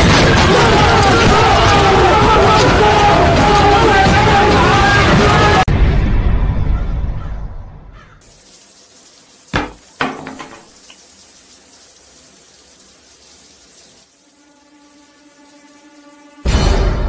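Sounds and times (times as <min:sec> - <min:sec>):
shower water hissing: 0:08.0 - 0:16.5.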